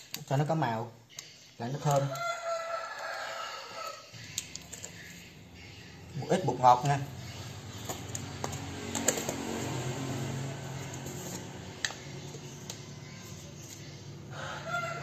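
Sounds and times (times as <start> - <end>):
plastic jars clicking and tapping: 0.0 - 0.5, 1.1 - 2.4, 3.8 - 5.2, 7.7 - 9.6, 11.0 - 12.9.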